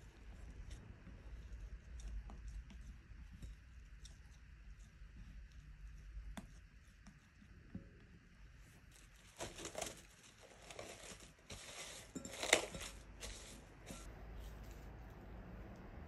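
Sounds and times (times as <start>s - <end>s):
cling wrap crinkling: 8.9s - 14.1s.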